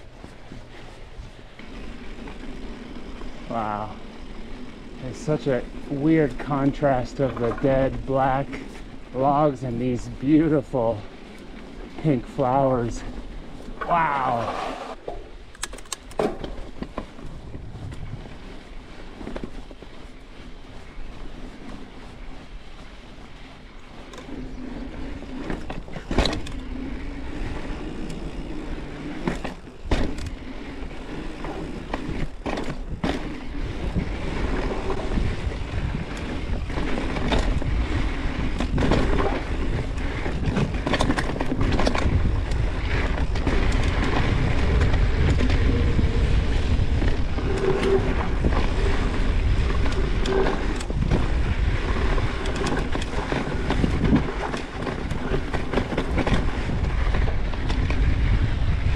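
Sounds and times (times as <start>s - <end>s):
bike tyres rumbling on dirt: 0.0s - 15.5s, 16.2s - 58.9s
bike rattling: 0.0s - 58.9s
wind on microphone: 17.2s - 18.5s, 31.8s - 58.9s.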